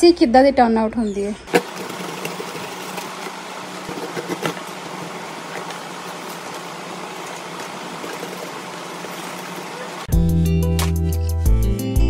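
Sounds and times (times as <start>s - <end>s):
fan whir with low hum: 0.0s - 10.1s.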